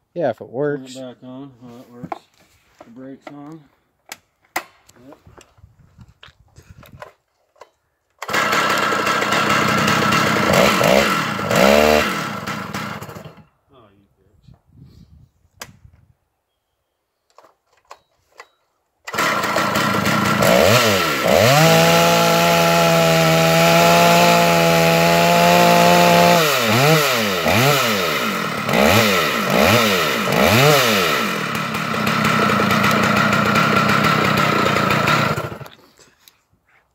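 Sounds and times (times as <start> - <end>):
chainsaw revving: 8.2 - 13.4, 19.1 - 35.8.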